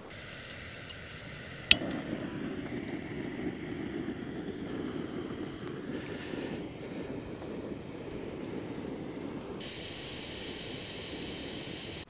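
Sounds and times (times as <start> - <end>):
gas stove ignition click: 0.0 - 4.0
gas burner rushing: 0.0 - 12.0.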